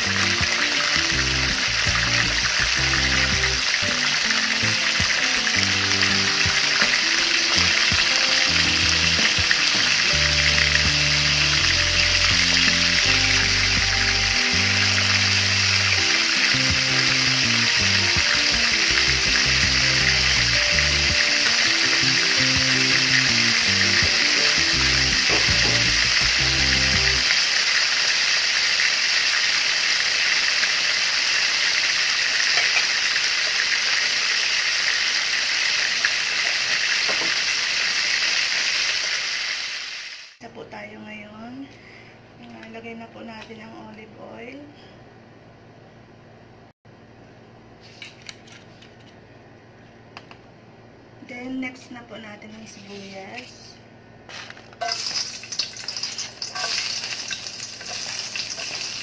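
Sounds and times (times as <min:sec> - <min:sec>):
background music with bass line: 0:00.0 - 0:27.3
fish frying in hot oil: 0:00.0 - 0:40.4, 0:54.3 - 0:59.0.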